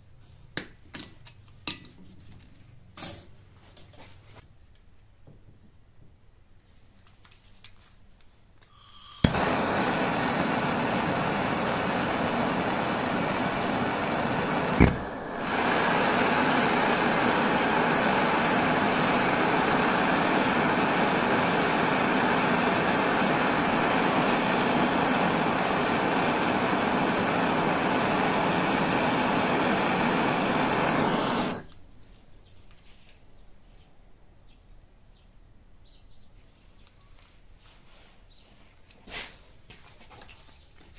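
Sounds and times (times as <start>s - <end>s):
gas torch flame hissing: 8.6s - 31.8s
gas torch igniter click: 8.7s - 31.8s.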